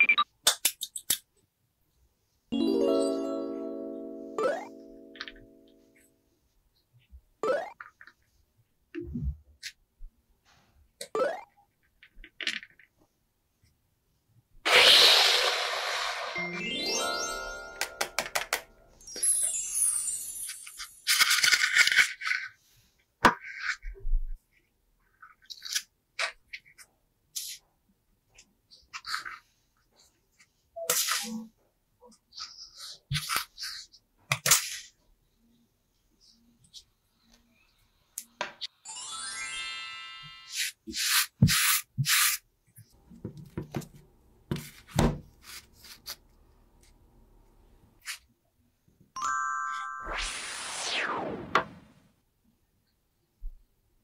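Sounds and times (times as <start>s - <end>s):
falling sweep of tones: 15.5s - 20.2s, 49.2s - 52.0s.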